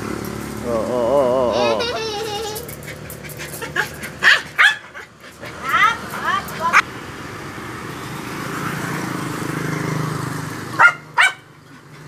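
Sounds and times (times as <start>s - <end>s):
small dog yipping: 2.9s - 6.8s, 10.8s - 11.4s.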